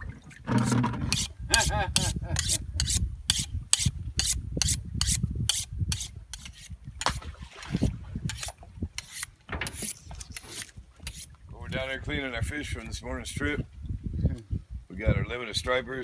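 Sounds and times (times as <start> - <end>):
knife scraping on sharpening steel: 0.6 - 6.8, 8.3 - 11.3.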